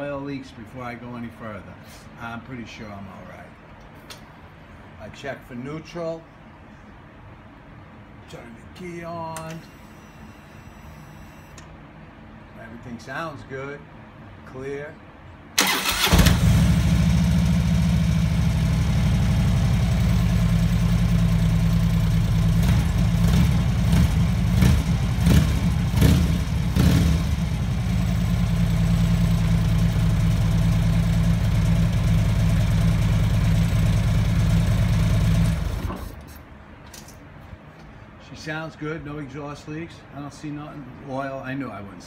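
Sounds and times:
motorcycle engine idling: 16.3s - 35.8s.

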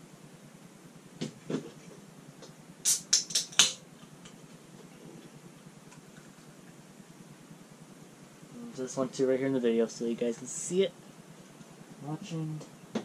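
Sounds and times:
quick sharp clicks: 2.8s - 3.8s.

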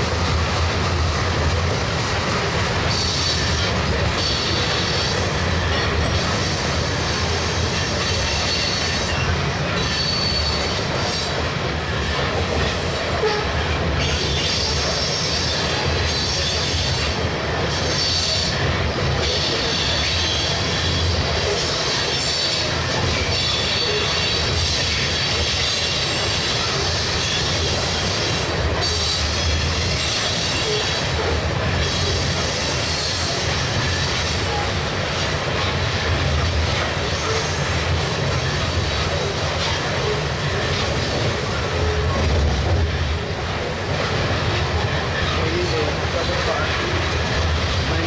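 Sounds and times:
train wheels rumbling on rail: 0.0s - 48.0s
high wheel squeal: 7.4s - 11.4s, 19.2s - 34.9s.

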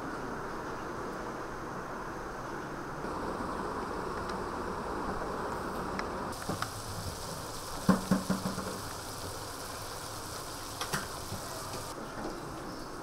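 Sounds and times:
meat sizzling in a pan: 6.3s - 12.0s
spatula knocking against pan: 7.9s - 8.8s.

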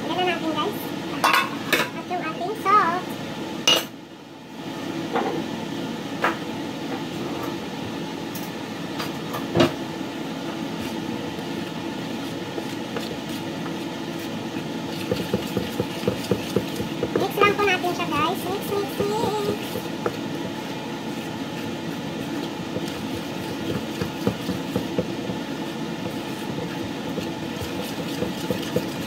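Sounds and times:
steady hum: 5.8s - 29.0s
steel bowl set on counter: 10.7s - 29.0s
spoon stirring in steel bowl: 10.8s - 29.0s.

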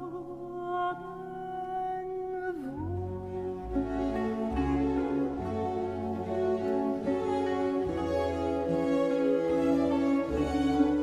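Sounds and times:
string orchestra playing slow music: 2.6s - 11.0s.

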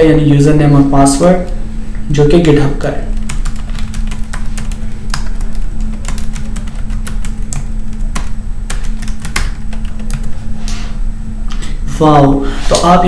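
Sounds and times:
steady low hum: 0.0s - 13.0s
keyboard keys clicking: 3.2s - 10.3s.

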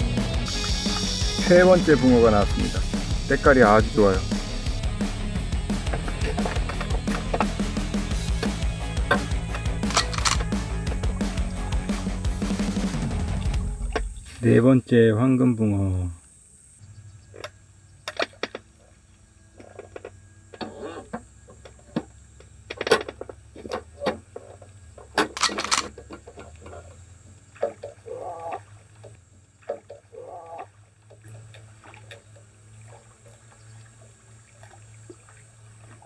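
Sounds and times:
fishing rod clicks and knocks: 8.3s - 10.6s
water splashing: 23.6s - 36.0s.

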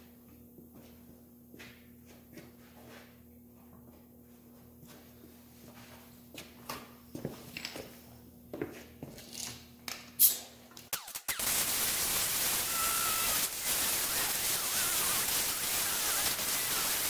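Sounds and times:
welding arc crackling hiss: 10.2s - 17.0s.

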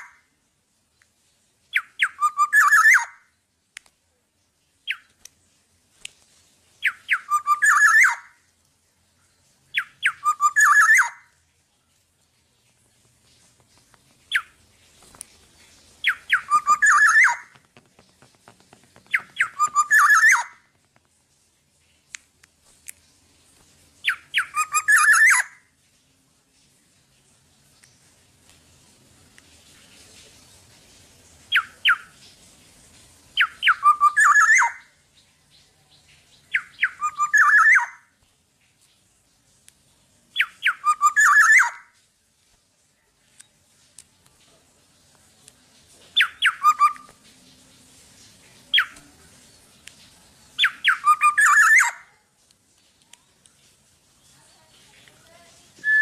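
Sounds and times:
oriole calling: 16.0s - 17.6s, 19.1s - 20.7s.

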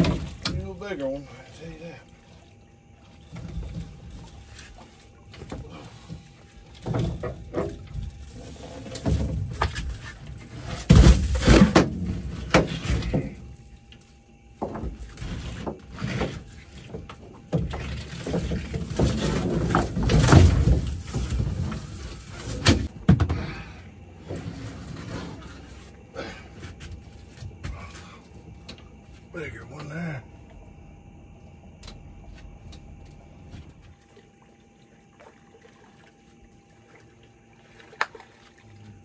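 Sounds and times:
fish thrashing knocks and rattles: 0.0s - 0.8s, 2.1s - 23.9s.

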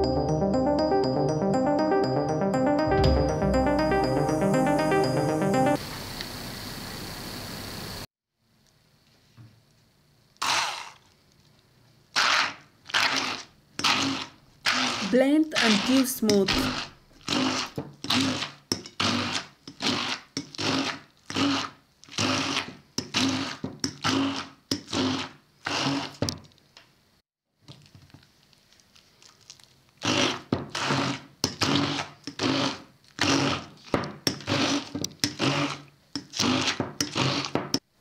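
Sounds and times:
stick blender motor whirring: 13.0s - 26.2s, 34.4s - 37.6s.

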